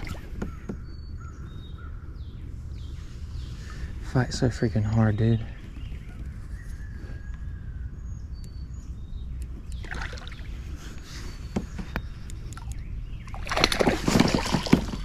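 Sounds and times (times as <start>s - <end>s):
bird chirps: 0.0s - 13.6s
faint water sounds: 9.7s - 11.3s
fish thrashing and splashing: 12.6s - 15.0s.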